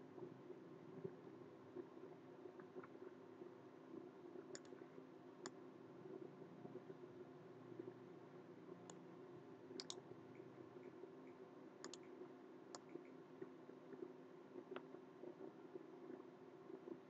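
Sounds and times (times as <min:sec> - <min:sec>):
low steady hum: 0:00.0 - 0:17.0
computer mouse clicks: 0:04.5 - 0:04.8, 0:09.8 - 0:13.2.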